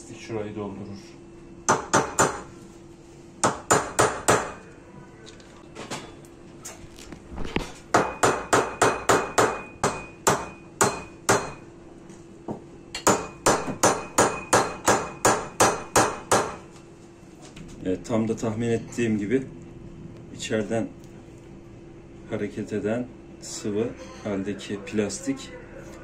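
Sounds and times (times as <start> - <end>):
hammer striking metal rod: 8.0 - 11.6, 13.0 - 16.6.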